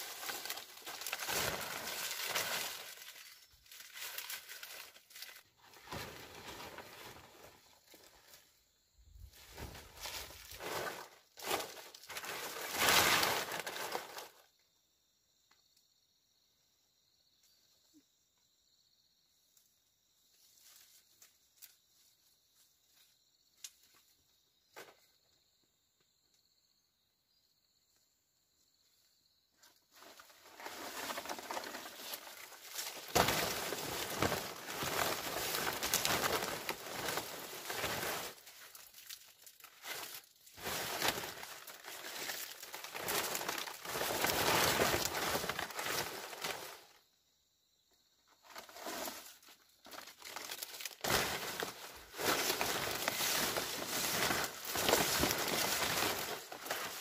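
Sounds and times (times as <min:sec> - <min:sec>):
dry plant material rustling: 0:00.0 - 0:08.5, 0:09.1 - 0:14.4, 0:29.9 - 0:47.0, 0:48.4 - 0:57.0
insects droning: 0:00.0 - 0:57.0.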